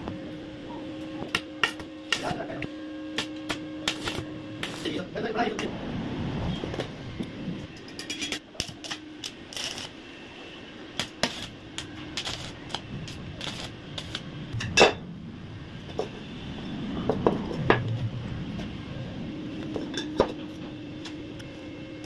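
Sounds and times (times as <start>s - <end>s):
welding arc crackling: 1.0s - 5.9s, 6.6s - 15.0s.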